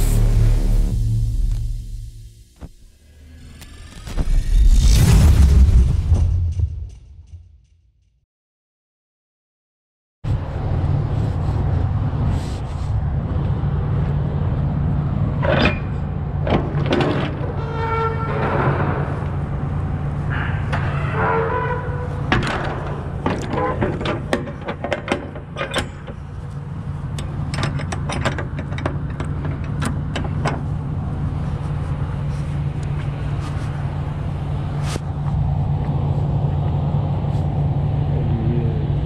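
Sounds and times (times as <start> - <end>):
sharp clicks and knocks: 22.3 - 26.3, 27.1 - 30.7.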